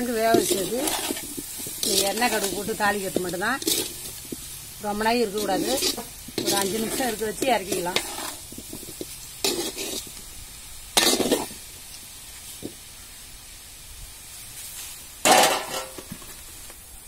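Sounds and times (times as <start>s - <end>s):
metal spoon scraping a metal pan: 0.0s - 10.2s, 11.0s - 11.6s
faint steady hiss: 0.0s - 17.0s.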